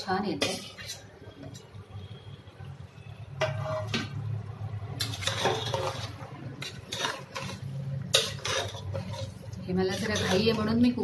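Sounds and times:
spoon scraping pot: 0:03.4 - 0:04.2, 0:04.9 - 0:11.0.

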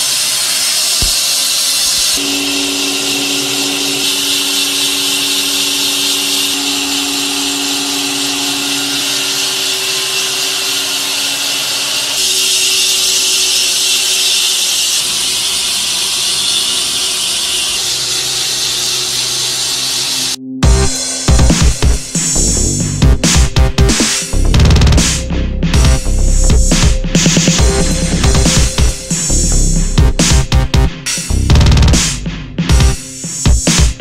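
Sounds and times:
band saw hissing through log: 0:00.0 - 0:20.4
motors humming: 0:00.0 - 0:32.0.

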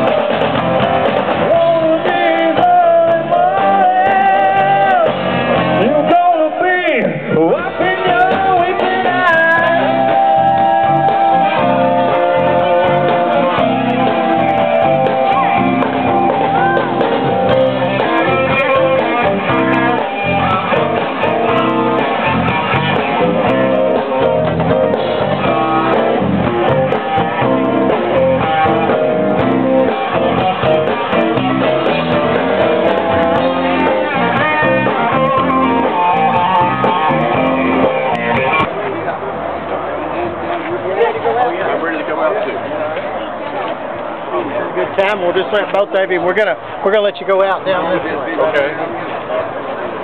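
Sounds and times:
guitar music with instruments: 0:00.0 - 0:06.2, 0:07.1 - 0:39.8.

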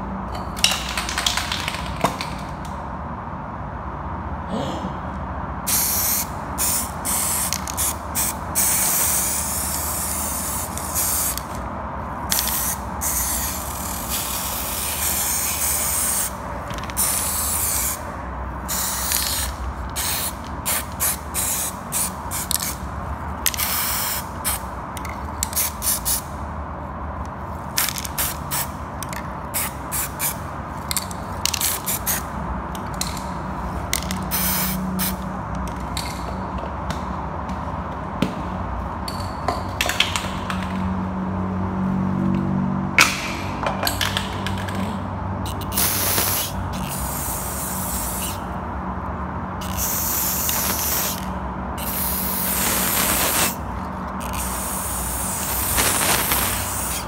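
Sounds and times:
spray paint can hissing: 0:05.7 - 0:11.6, 0:12.3 - 0:22.8, 0:23.4 - 0:26.3, 0:27.8 - 0:32.3, 0:34.0 - 0:35.2, 0:45.5 - 0:48.5, 0:49.6 - 0:57.0.

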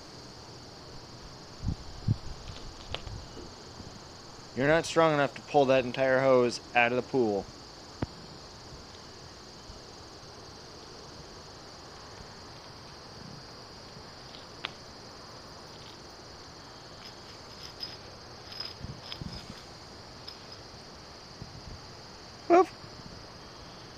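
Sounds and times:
crickets chirping: 0:00.0 - 0:23.9
hose tapping and scraping on concrete: 0:16.8 - 0:20.6.

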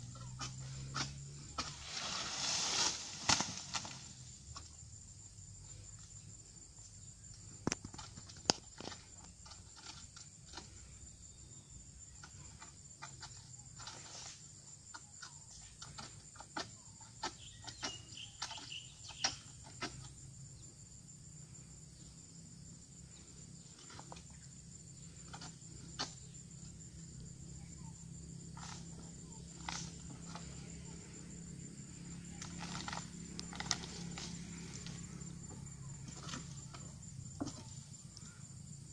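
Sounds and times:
blade hacking palm fronds: 0:00.1 - 0:04.2, 0:32.4 - 0:34.9.

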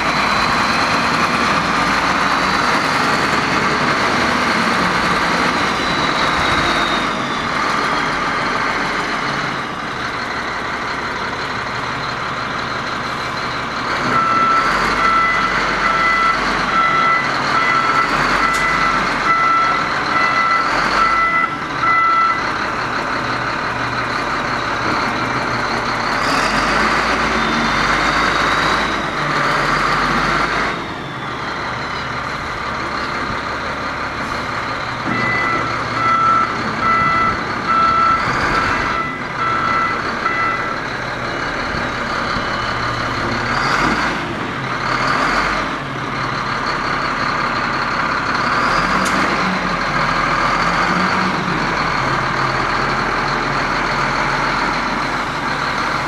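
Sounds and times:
diesel engine running: 0:00.0 - 0:56.0
reversing alarm beeping: 0:04.9 - 0:08.4, 0:14.0 - 0:22.6, 0:35.0 - 0:40.8.

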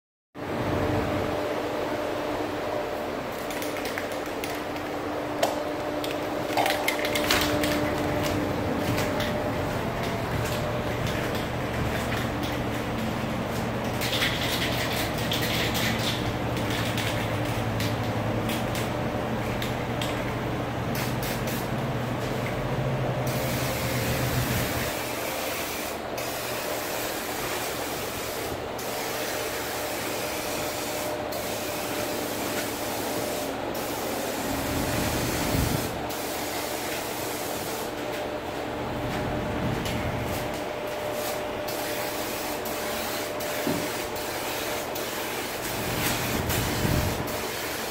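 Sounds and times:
paint sprayer spraying: 0:20.9 - 0:21.8, 0:23.3 - 0:38.0, 0:40.3 - 0:47.9.

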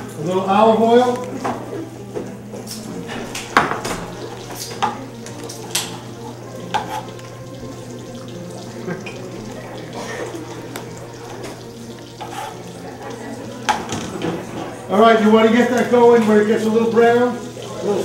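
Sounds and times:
utensils and dishes clinking: 0:00.0 - 0:18.0
chicken frying in a skillet: 0:02.7 - 0:18.0.

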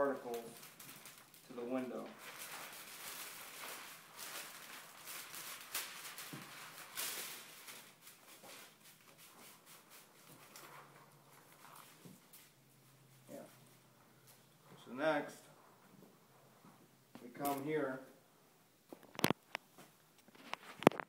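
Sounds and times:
plastic film crinkling: 0:00.0 - 0:14.5, 0:17.2 - 0:17.7, 0:19.0 - 0:19.6, 0:20.2 - 0:21.0.

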